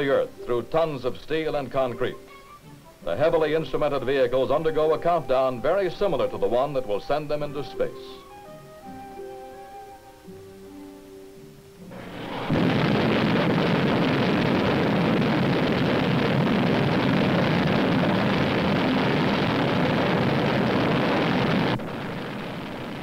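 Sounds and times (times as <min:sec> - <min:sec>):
rocket engine exhaust roar: 0:11.9 - 0:23.0.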